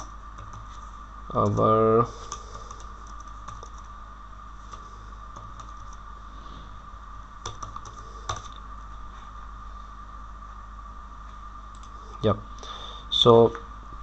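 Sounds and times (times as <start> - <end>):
steady background hum: 0.0 - 14.0
computer keyboard clicks: 2.3 - 3.9.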